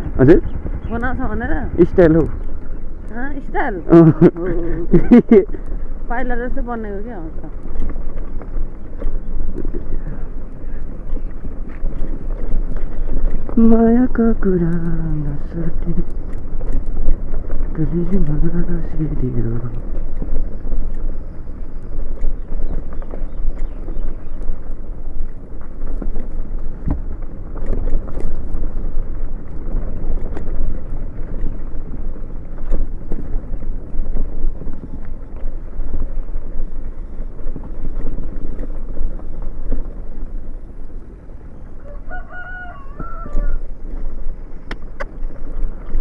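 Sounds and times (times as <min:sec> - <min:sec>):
motorcycle engine: 0:00.0 - 0:46.0
wind buffeting microphone: 0:00.0 - 0:46.0
rooster crowing: 0:41.7 - 0:43.7.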